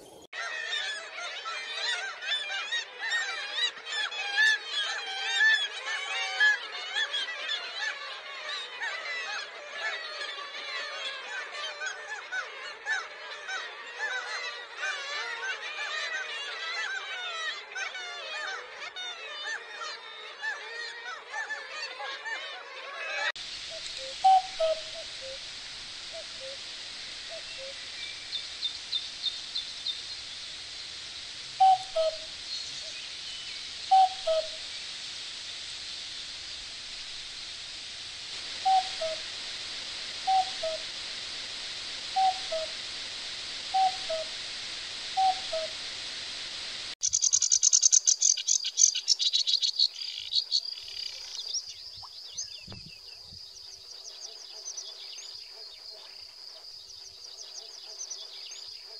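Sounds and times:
cuckoo calling: 23.1s - 25.4s, 26.1s - 26.6s, 27.3s - 30.0s, 31.6s - 33.0s, 33.9s - 34.7s, 38.6s - 39.4s, 40.2s - 40.9s, 42.1s - 42.8s, 43.7s - 44.4s, 45.2s - 45.8s
high bird chirps: 47.0s - 53.0s
warbler chattering song: 47.0s - 56.0s.

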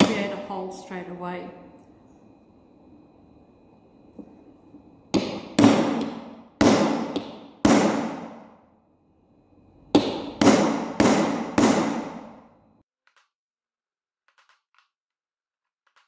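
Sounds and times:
hammer striking metal punch: 5.1s - 8.6s, 9.9s - 12.5s.

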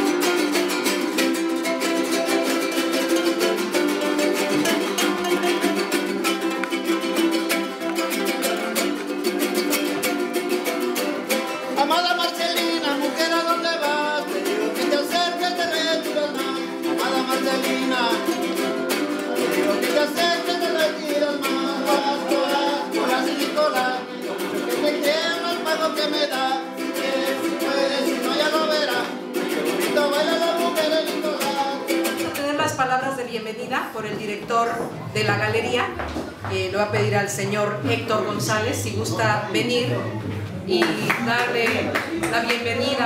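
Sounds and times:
guitars strummed fast: 0.0s - 32.4s
person singing: 0.0s - 32.5s.

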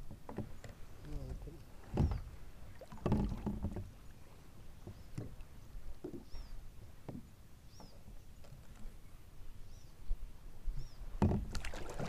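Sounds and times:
water slapping against hull: 0.0s - 6.4s, 11.1s - 12.0s.

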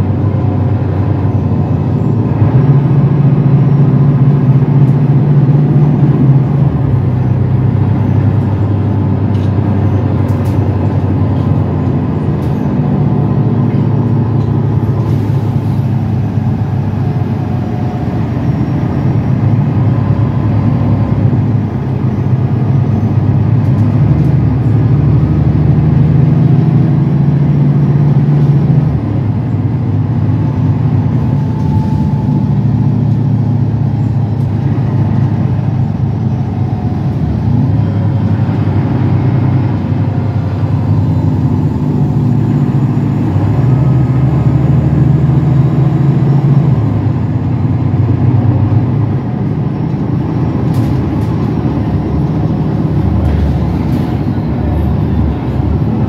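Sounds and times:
bus engine hum from inside: 0.0s - 56.0s
road noise: 0.0s - 56.0s.

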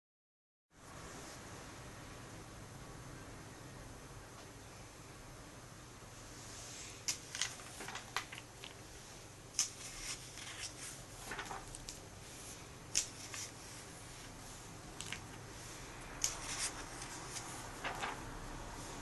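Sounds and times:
paper pages turning: 7.0s - 8.8s, 9.5s - 14.3s, 14.9s - 15.5s, 16.2s - 18.4s.

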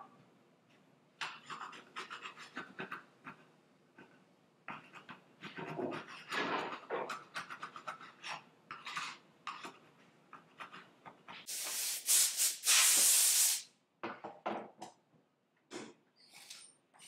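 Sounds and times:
air blow gun hissing: 11.5s - 13.7s.

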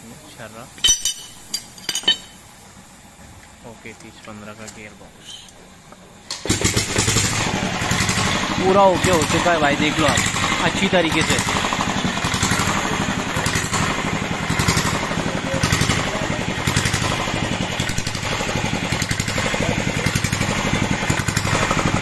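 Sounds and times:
engine running with even pulsing: 6.4s - 22.0s.

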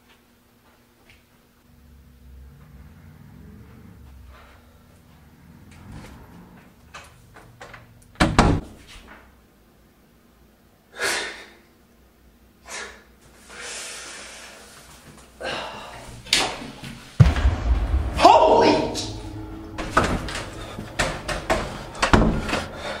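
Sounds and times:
heavy door thud: 17.2s - 22.7s
sharp bang: 17.2s - 22.7s.

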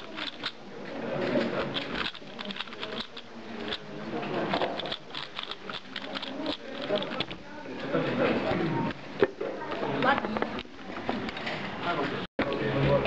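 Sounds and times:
murmur of voices: 0.0s - 13.0s.

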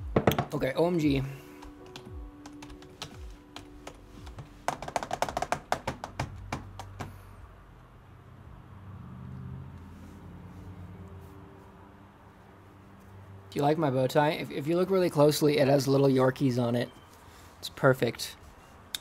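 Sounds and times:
faint background music: 0.0s - 19.0s
computer keyboard typing: 1.6s - 7.2s.

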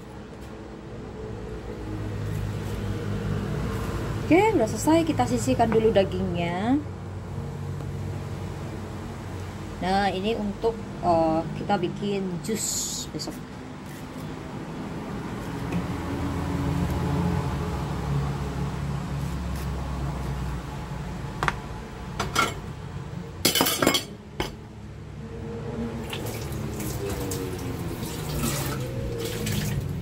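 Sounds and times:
water running into metal pot: 28.0s - 29.8s.

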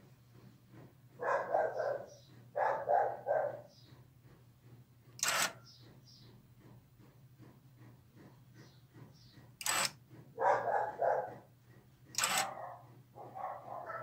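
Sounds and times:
dog barking: 1.2s - 3.7s, 10.4s - 11.5s, 12.3s - 14.0s
door lock motor burst: 9.6s - 9.9s, 12.2s - 12.5s.

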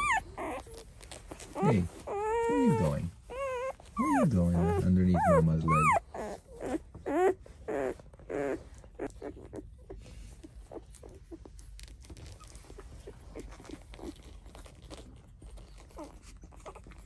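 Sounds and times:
puppies whimpering: 0.0s - 17.0s
puppy squeaks and clicks: 0.0s - 17.0s.

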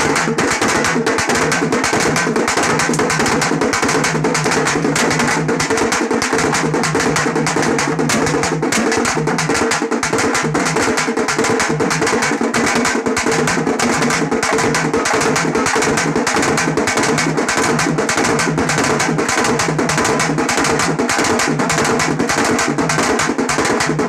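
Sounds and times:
fast street drumming: 0.0s - 24.0s.

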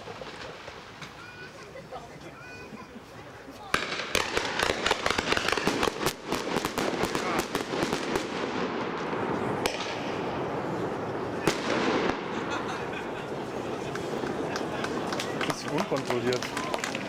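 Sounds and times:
firework pops and crackling: 0.0s - 1.2s, 3.6s - 10.4s, 11.4s - 12.4s, 13.4s - 17.0s
firework bangs: 0.0s - 1.5s, 3.7s - 17.0s.

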